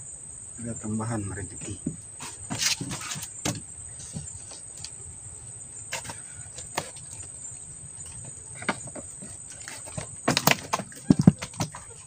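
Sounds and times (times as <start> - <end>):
night insects droning: 0.0 - 12.0
fish knocking in a boat: 8.6 - 12.0.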